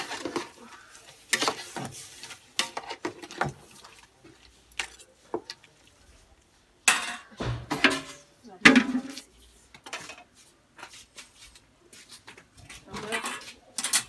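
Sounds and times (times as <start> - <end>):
metal ladle scraping cooking pot: 0.0 - 5.0.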